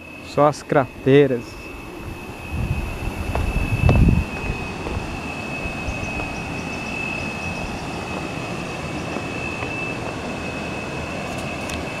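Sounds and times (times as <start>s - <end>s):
high-pitched whine: 0.0s - 12.0s.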